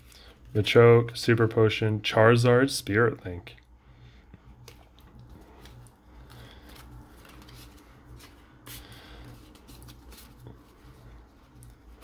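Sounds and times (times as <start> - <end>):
cards sliding and rubbing: 4.6 - 12.0.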